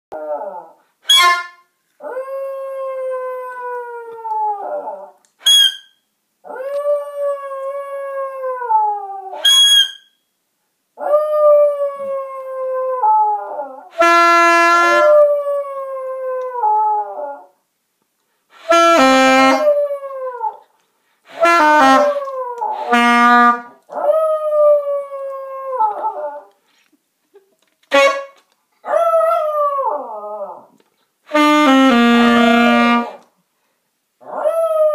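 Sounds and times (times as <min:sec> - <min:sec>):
squawking saxophone notes: 0:18.6 - 0:19.8, 0:21.3 - 0:23.7, 0:31.3 - 0:33.2.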